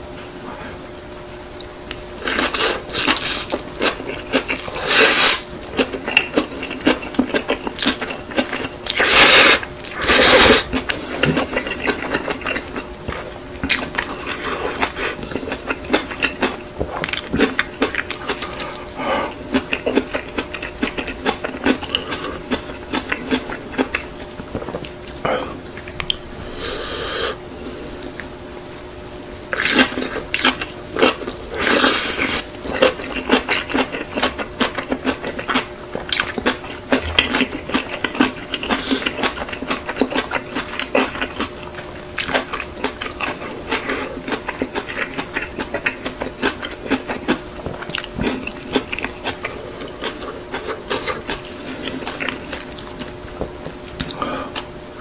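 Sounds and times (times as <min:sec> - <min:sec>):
faint steady hum: 0:00.0 - 0:55.0
wet chewing and mouth smacks: 0:00.9 - 0:25.2, 0:28.2 - 0:54.7
noodle slurps: 0:04.7 - 0:05.5, 0:08.9 - 0:11.2.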